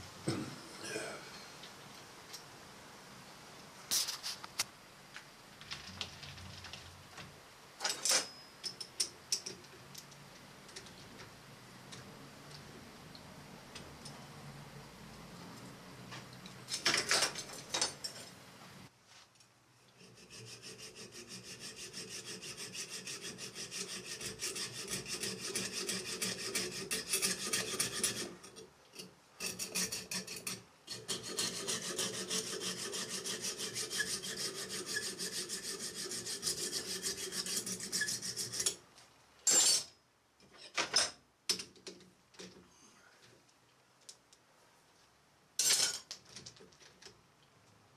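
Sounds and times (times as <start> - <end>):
hacksaw cutting metal: 20.0 - 28.6, 29.4 - 38.8.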